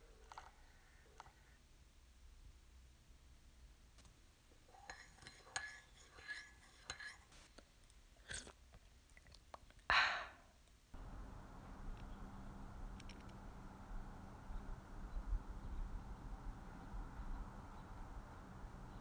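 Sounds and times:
low background hum: 0:00.0 - 0:19.0.

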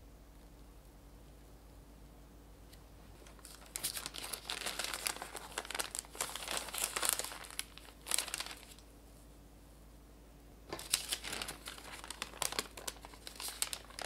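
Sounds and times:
parchment paper crinkling: 0:03.2 - 0:08.9, 0:10.7 - 0:14.0.

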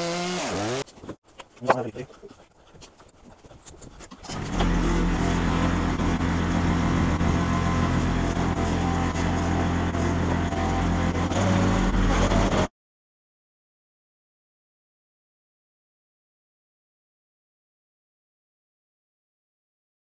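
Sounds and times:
tractor engine running: 0:04.1 - 0:12.7.

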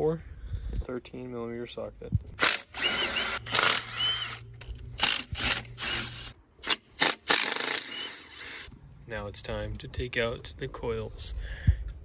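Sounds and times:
power tool whining: 0:02.4 - 0:08.7.

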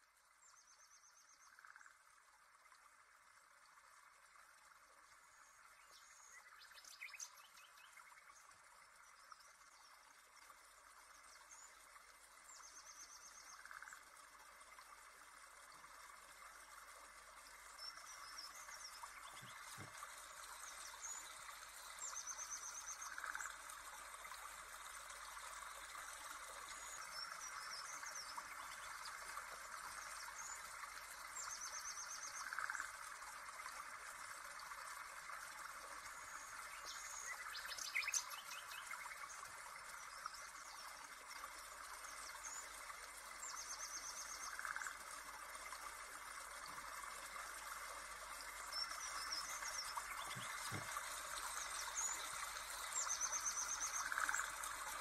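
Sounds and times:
birdsong trills: 0:48.6 - 0:55.0.

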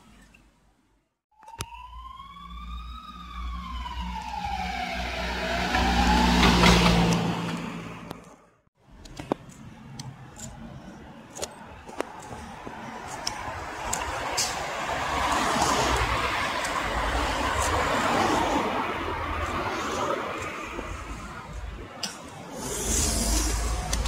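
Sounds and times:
emergency siren wailing: 0:01.3 - 0:08.1, 0:12.2 - 0:22.0
street traffic noise: 0:01.4 - 0:24.0
vehicle engine: 0:03.2 - 0:21.8.

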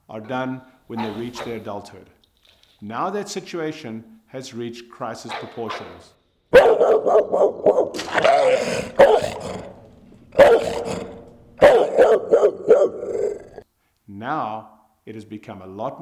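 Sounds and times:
dog barking aggressively: 0:01.0 - 0:01.6, 0:05.3 - 0:13.6.

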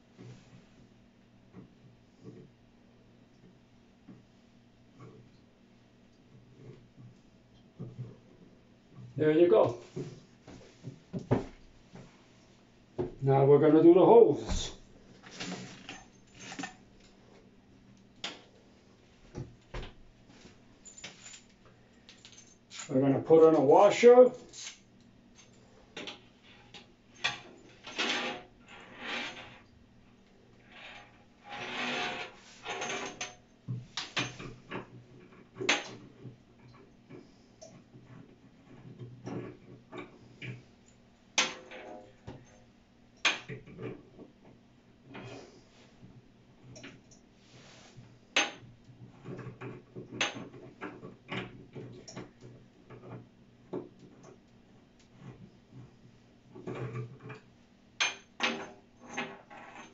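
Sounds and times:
metal hose scraping and rubbing: 0:27.4 - 0:29.7, 0:30.6 - 0:33.4.

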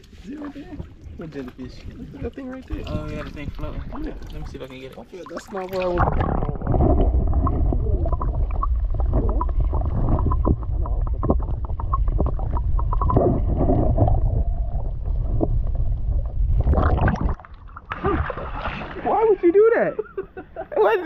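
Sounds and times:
underwater rumble: 0:00.0 - 0:19.2
bubbling pops and crackles: 0:05.4 - 0:18.5.

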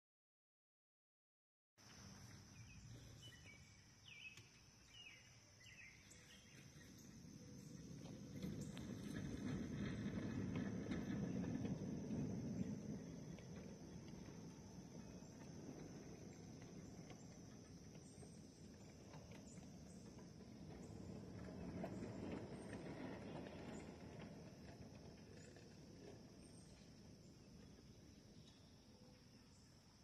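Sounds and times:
train wheels rumbling over rails: 0:06.1 - 0:28.6.

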